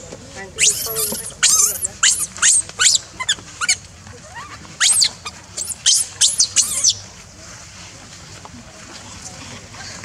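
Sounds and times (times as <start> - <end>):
baby monkey screaming: 0.6 - 3.8, 4.8 - 7.0.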